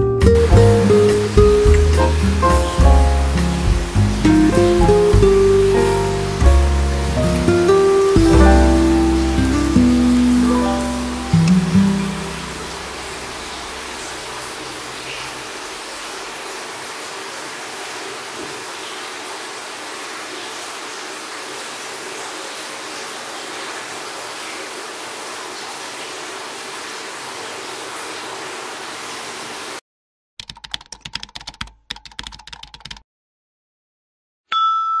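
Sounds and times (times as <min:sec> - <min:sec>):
steady hiss: 0:00.4 - 0:29.8
keyboard typing clicks: 0:30.4 - 0:33.0
bright bell ding: 0:34.5 - 0:35.0.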